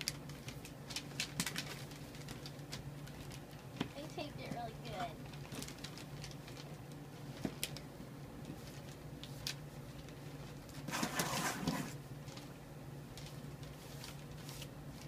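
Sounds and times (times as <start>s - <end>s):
packing tape tearing off box: 10.7s - 12.0s.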